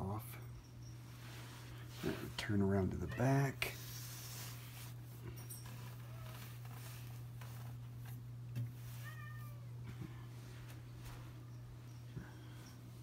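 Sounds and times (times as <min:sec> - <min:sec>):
room hum: 0:00.0 - 0:13.0
cat meowing: 0:08.9 - 0:09.7.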